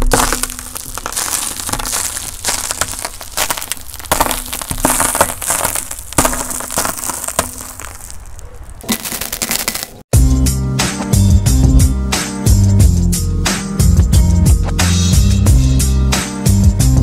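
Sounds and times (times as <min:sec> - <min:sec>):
hard candies cracking under car tyre: 0:00.0 - 0:10.1.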